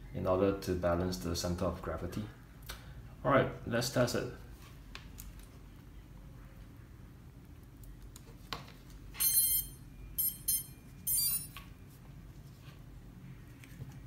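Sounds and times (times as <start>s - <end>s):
short high electronic beeps: 9.2s - 11.6s.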